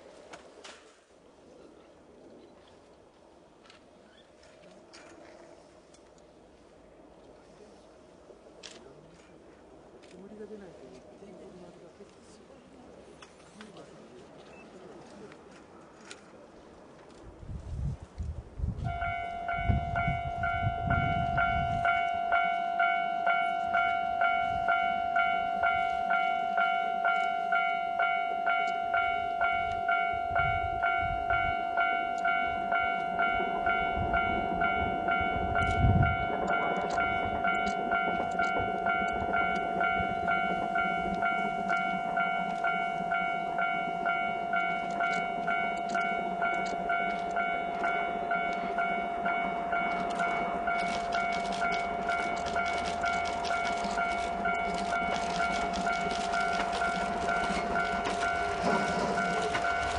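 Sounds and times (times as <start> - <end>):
train rumble: 0.0 - 59.9
level crossing alarm dinging: 18.9 - 59.9.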